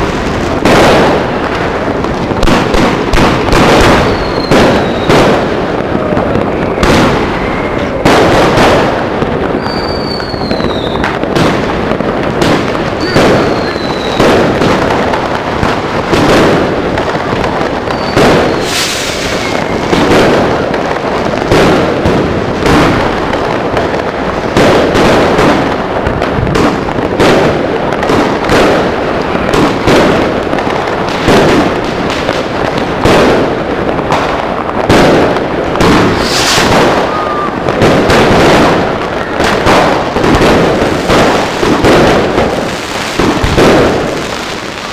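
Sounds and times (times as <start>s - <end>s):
firework shells bursting: 0.0s - 23.7s, 24.5s - 44.9s
firework crackle: 0.0s - 44.9s
falling firework whistles: 3.5s - 5.4s, 9.5s - 11.2s, 13.0s - 14.4s, 17.8s - 20.3s, 35.8s - 38.2s.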